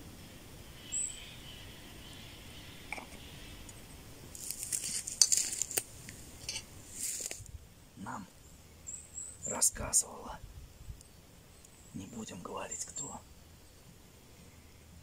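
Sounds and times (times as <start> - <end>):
footsteps crunching on twigs: 4.3 - 7.5
twigs snapping: 4.3 - 7.5.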